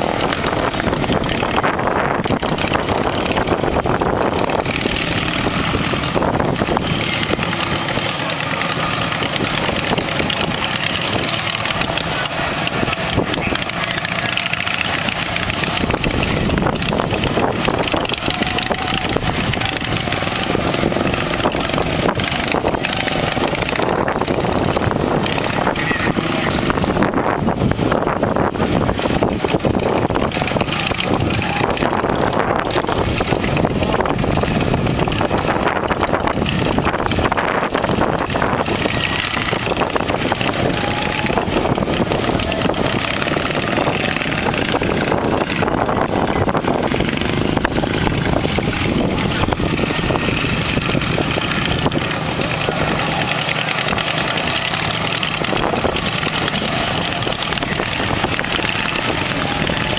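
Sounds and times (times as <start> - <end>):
small engines racing: 0.0 - 59.9.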